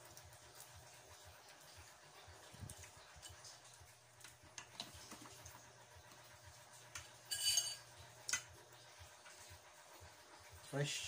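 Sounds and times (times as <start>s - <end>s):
ladle clinking in metal pot: 7.3s - 7.9s.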